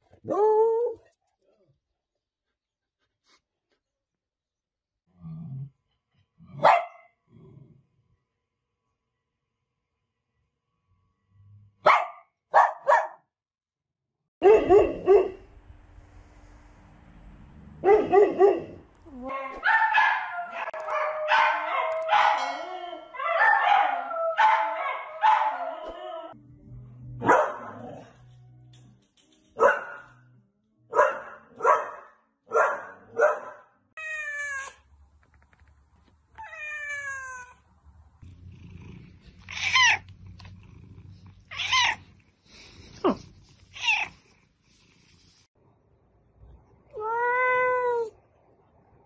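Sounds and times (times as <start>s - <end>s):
dogs barking and howling: 17.8s - 26.4s
cat meowing: 34.0s - 34.8s, 36.4s - 37.6s, 39.4s - 40.1s, 41.4s - 42.1s, 43.7s - 44.3s, 46.9s - 48.2s.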